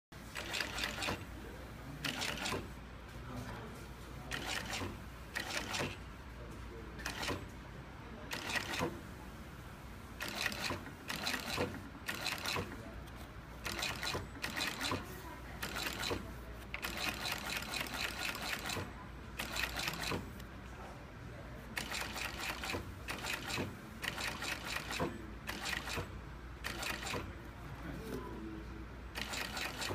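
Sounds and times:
sewing machine stitching: 0:00.2 - 0:01.3, 0:02.0 - 0:02.8, 0:04.3 - 0:06.0, 0:07.0 - 0:07.5, 0:08.3 - 0:09.0, 0:10.2 - 0:20.4, 0:21.8 - 0:27.3, 0:29.2 - 0:29.9.

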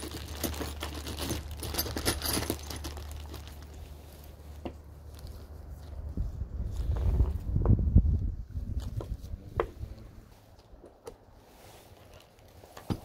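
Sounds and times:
plastic bag crinkling: 0:00.0 - 0:04.4, 0:11.8 - 0:12.8.

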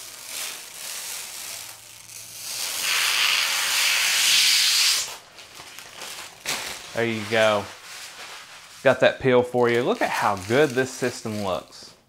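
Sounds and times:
plastic film peeling off glass: 0:00.0 - 0:08.9, 0:09.6 - 0:11.8.

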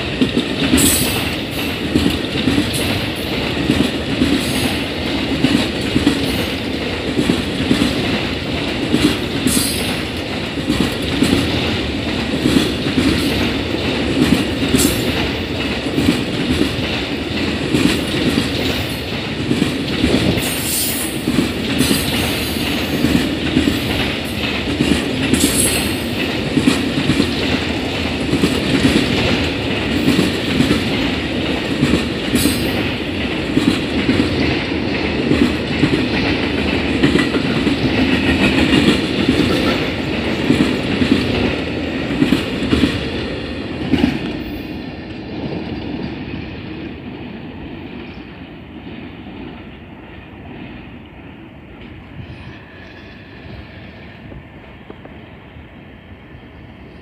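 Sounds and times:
clickety-clack over rail joints: 0:00.0 - 0:55.7
train wheels rumbling on rail: 0:00.0 - 0:57.0.

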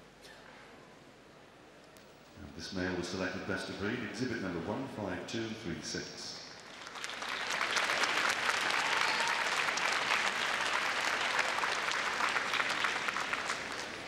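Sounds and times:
arena audience applauding: 0:06.6 - 0:14.0.

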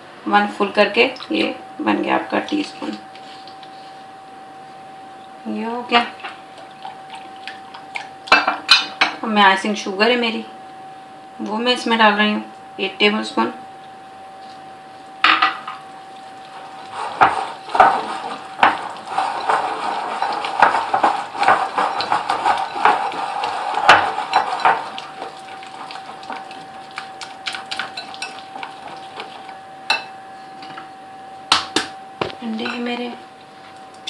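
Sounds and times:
spoon scraping and clinking bowl: 0:16.6 - 0:30.1.

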